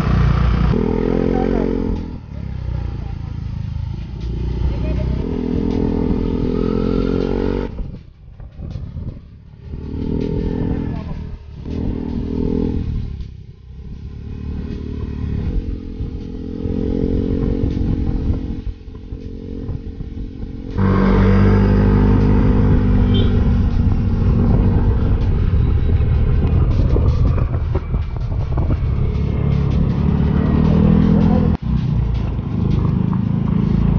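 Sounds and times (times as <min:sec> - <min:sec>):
scooter engine running: 0:14.8 - 0:31.6.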